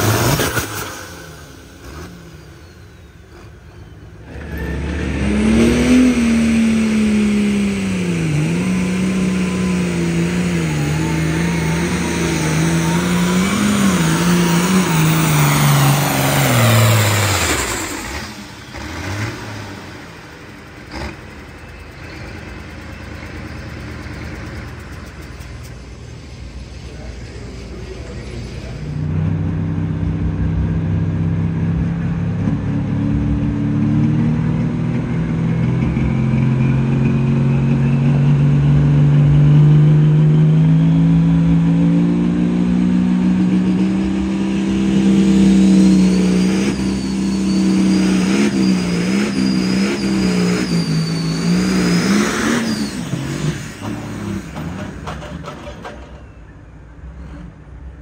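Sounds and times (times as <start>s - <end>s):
tractor diesel engine: 0.0s - 58.0s
high whine: 31.6s - 54.5s.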